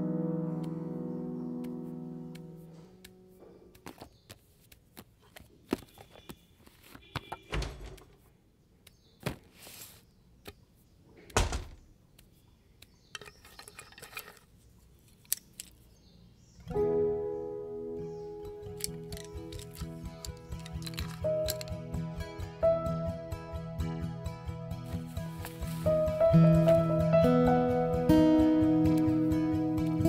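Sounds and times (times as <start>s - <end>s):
music: 0.0s - 3.4s, 16.7s - 30.0s
wooden cupboard door thud: 7.3s - 8.2s, 11.3s - 11.9s
rustling: 9.1s - 10.1s, 18.7s - 21.8s, 24.9s - 26.2s
clicks and knocks of handling: 11.2s - 16.0s, 18.6s - 21.9s.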